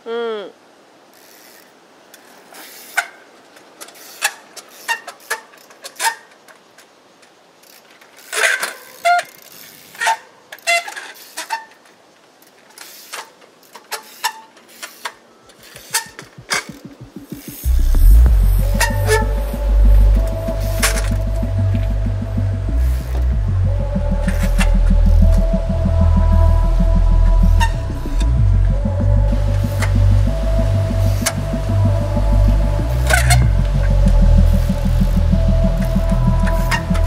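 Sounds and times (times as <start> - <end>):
bike clicks and knocks: 2.9 - 17.7
short squeaks: 3.9 - 6.4, 12.8 - 16.8.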